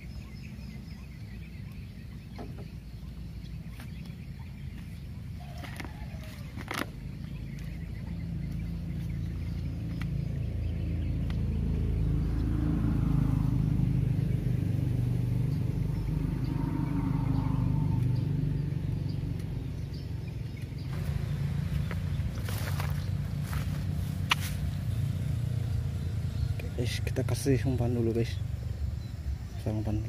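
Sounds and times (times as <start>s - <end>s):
engine droning past: 6.9s - 30.0s.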